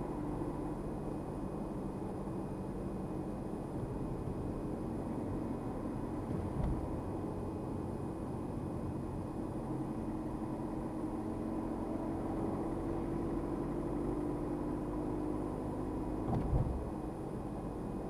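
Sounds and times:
car engine and tyre noise: 0.0s - 18.0s.

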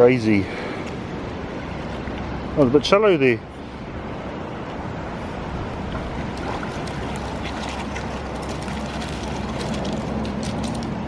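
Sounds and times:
dog splashing out of water: 6.2s - 10.8s
dog shaking water from coat: 6.4s - 10.9s.

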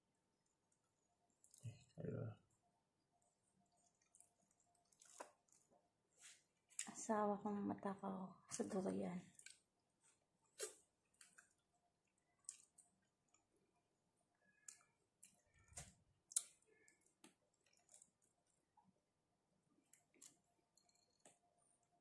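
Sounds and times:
mouth chewing soft fruit: 1.3s - 2.0s, 3.2s - 5.7s, 9.3s - 18.9s, 19.8s - 22.0s
wet clicks and smacks: 3.7s - 5.7s, 9.3s - 9.7s, 10.5s - 13.5s, 14.5s - 18.7s.

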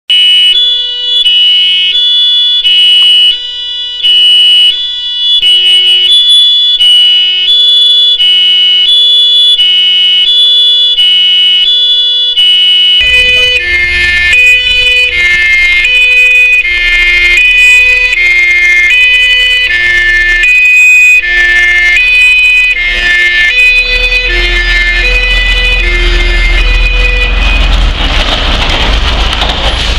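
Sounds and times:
two-tone fire siren: 0.1s - 28.3s
truck engine running: 13.0s - 29.9s.

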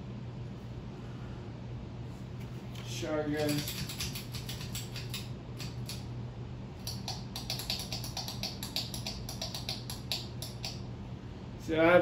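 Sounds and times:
ceiling fan motor hum: 0.0s - 12.0s
rapid light clicks: 3.3s - 6.1s, 6.8s - 10.8s.

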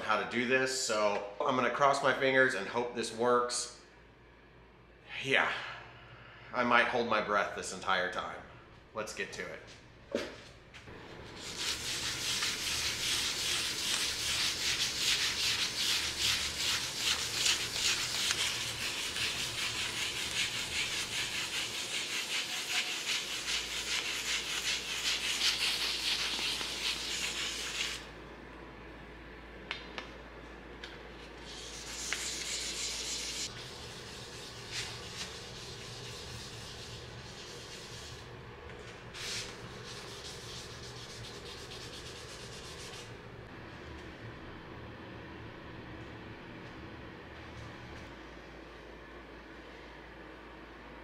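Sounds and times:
sandpaper rubbing by hand: 11.4s - 28.1s, 31.4s - 38.2s, 39.2s - 43.1s.

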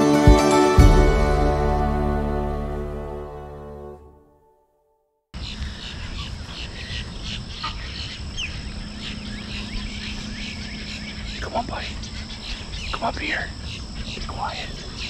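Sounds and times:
background music: 0.0s - 4.9s
high insect drone: 5.4s - 15.0s.

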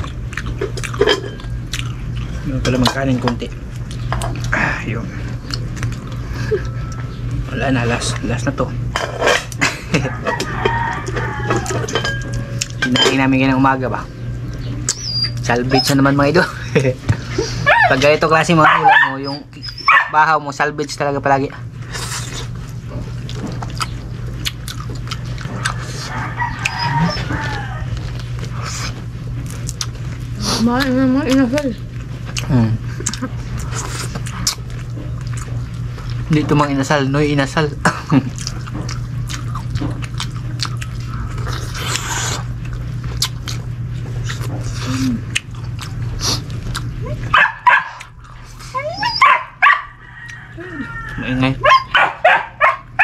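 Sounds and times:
eating clicks and smacks: 0.0s - 4.6s, 5.4s - 7.1s, 23.1s - 26.0s, 29.4s - 30.2s, 32.3s - 36.3s, 38.2s - 47.0s
steady low hum: 0.0s - 53.0s
dog barking and whining: 14.9s - 16.2s, 17.6s - 20.4s, 25.5s - 27.9s, 47.0s - 50.0s, 51.0s - 53.0s
chickens clucking: 25.2s - 28.1s.

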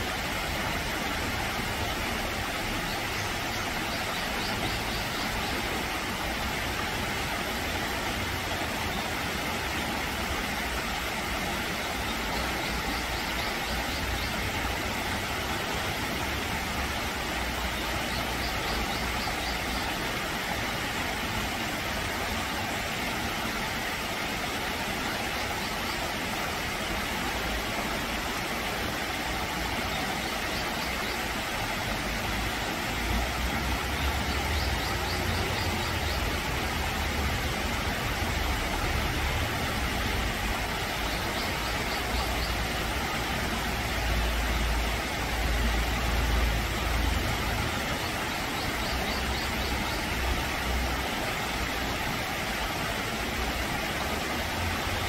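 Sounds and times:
stream rushing over rocks: 0.0s - 55.0s.

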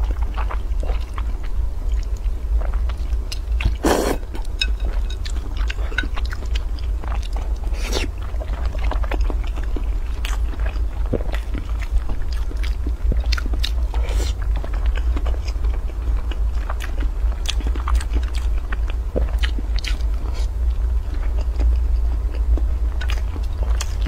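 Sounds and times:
steady low hum: 0.0s - 24.0s
wet chewing with mouth clicks: 0.0s - 24.0s
slurping and biting: 3.6s - 4.4s.

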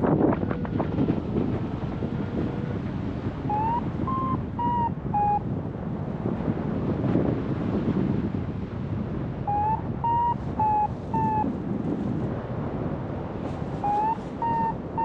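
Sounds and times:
wind rushing over microphone: 0.0s - 15.0s
variometer beeps: 3.5s - 5.4s, 9.5s - 11.5s, 13.8s - 15.0s.

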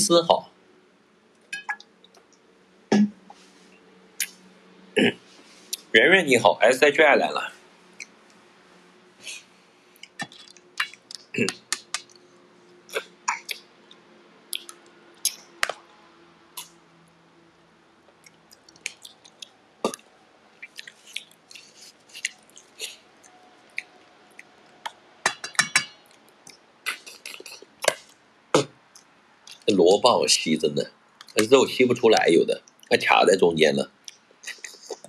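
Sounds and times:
lip smacks and chewing: 10.0s - 12.2s, 12.9s - 15.8s, 18.1s - 25.0s, 26.1s - 28.2s, 28.9s - 29.6s, 34.0s - 35.0s.

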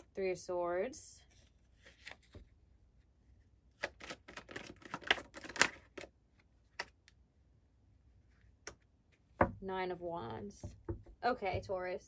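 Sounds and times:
cards clicking and snapping: 3.8s - 6.1s.

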